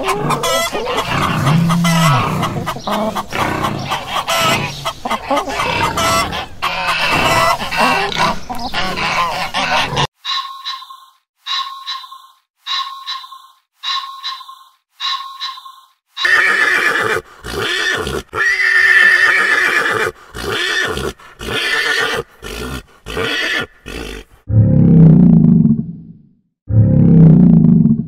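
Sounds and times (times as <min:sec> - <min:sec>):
horse neighing: 0:00.0 - 0:02.7, 0:16.2 - 0:24.3
bird calls: 0:00.0 - 0:16.6.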